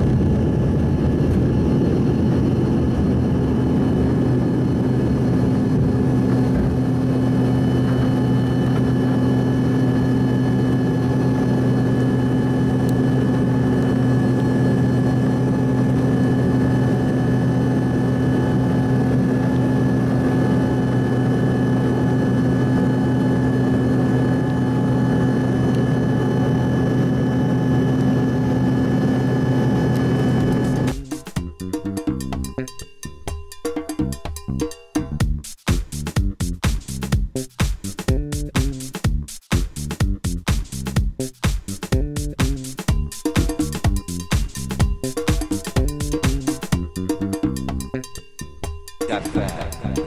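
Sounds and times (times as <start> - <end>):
jet engine cabin drone: 0.0 - 32.8, 42.1 - 47.7, 49.1 - 50.0.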